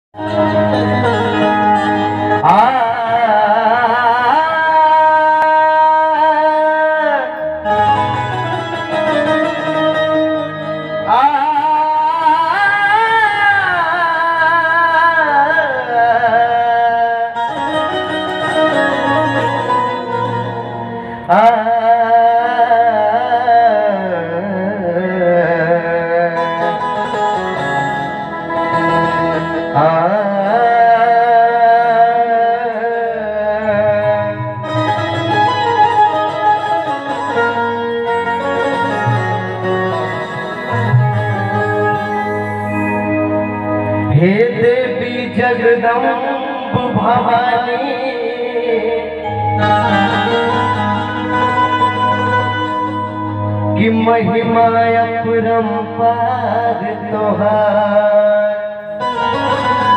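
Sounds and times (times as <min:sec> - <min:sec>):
harmonium melody: 0:00.1 - 0:59.9
man singing wordless vocals: 0:02.4 - 0:07.6, 0:11.0 - 0:17.7, 0:21.2 - 0:26.9, 0:29.7 - 0:34.6, 0:44.1 - 0:52.4, 0:53.7 - 0:59.9.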